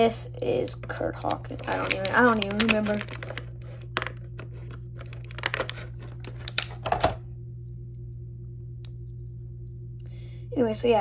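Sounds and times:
low hum: 0.0 - 11.0
plastic bag crinkling: 0.9 - 7.0.

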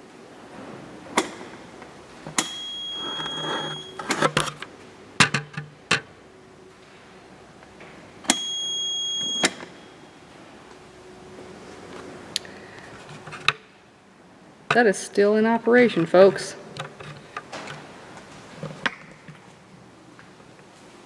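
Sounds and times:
forklift warning buzzer beeps: 2.4 - 4.1, 8.3 - 10.1.

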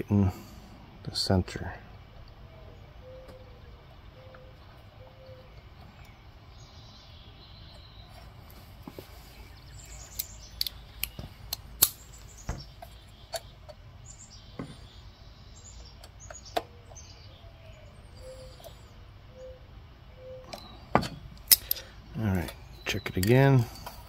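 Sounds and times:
small birds chirping: 0.0 - 24.0
hand tools clicking on metal: 21.4 - 24.0.

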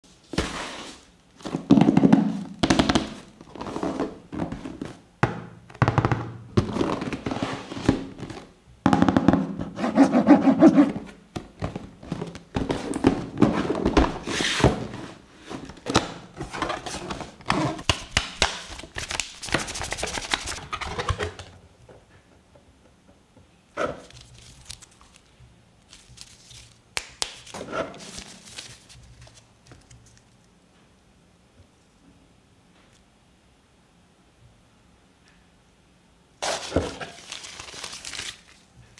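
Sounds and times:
cardboard box sliding and scraping: 12.7 - 15.7
rustling of wrapping: 24.0 - 26.8, 27.4 - 30.5, 36.4 - 38.9.

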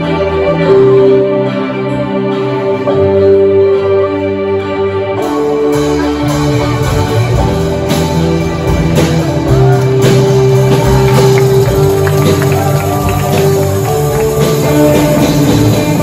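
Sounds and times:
electric and acoustic guitars: 0.0 - 16.0
drum kit: 5.2 - 16.0.

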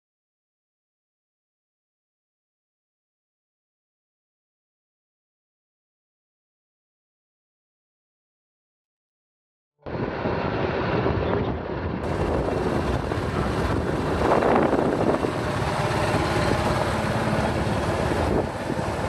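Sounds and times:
wind rumble on microphone: 9.8 - 19.0
motorcycle engine running: 12.0 - 19.0.

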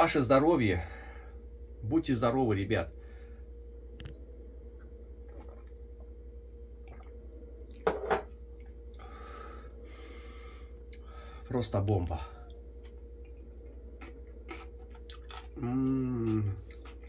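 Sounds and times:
steady low hum: 0.0 - 17.0
man drinking: 4.8 - 11.1
wet mouth sounds: 5.2 - 5.8, 6.8 - 7.8
chewing food: 12.4 - 17.0.

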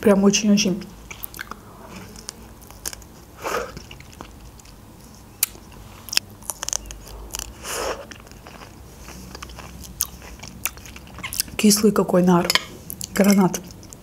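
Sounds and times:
seeds crunching while chewed: 1.1 - 11.6.

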